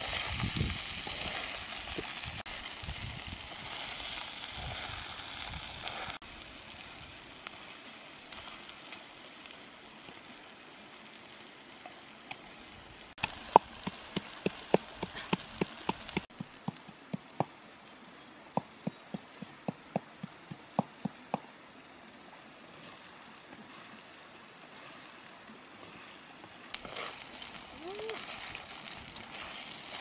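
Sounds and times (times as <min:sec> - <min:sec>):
stream water hissing: 0:00.0 - 0:30.0
pestle pounding in clay mortar: 0:13.2 - 0:17.5.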